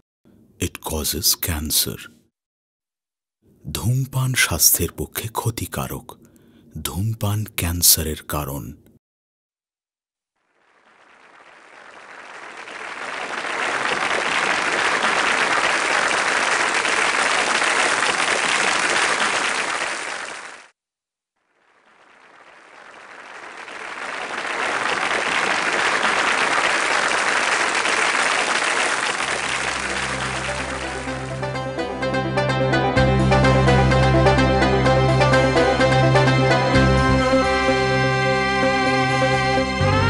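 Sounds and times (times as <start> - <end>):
audience applause: 10.6 - 20.7, 21.6 - 31.6
music: 29.4 - 40.0.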